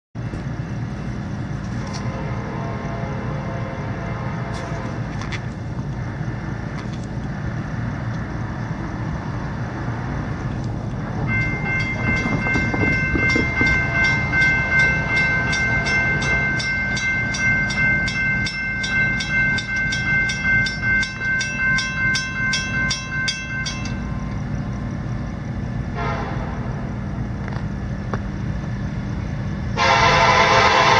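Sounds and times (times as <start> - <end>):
freight train rumble: 0.2 - 30.9
crossing signal bell ringing: 11.2 - 24.8.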